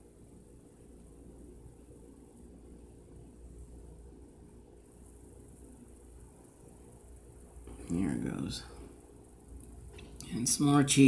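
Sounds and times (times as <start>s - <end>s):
low hum: 0.0s - 10.9s
high hiss: 0.8s - 11.0s.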